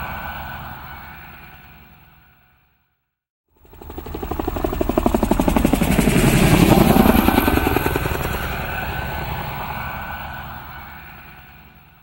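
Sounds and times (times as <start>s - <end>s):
aircraft rotors beating overhead: 3.5s - 12.0s.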